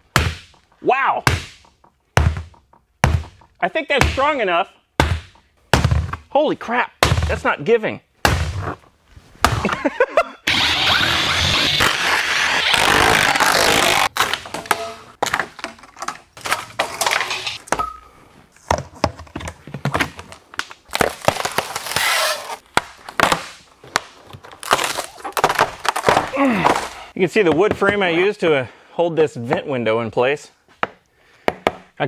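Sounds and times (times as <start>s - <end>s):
wall panel cracking and snapping: 20.6s - 26.9s.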